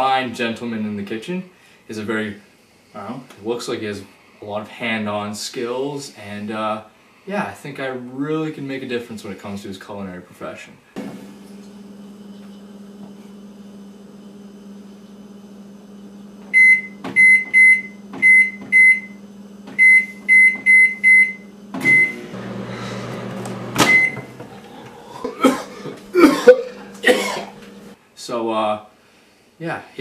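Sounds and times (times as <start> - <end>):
microwave running with low hum: 11.0 - 28.0
microwave keypad beeps: 16.5 - 19.2, 19.8 - 22.2, 23.8 - 24.3
clunk: 23.2 - 24.6.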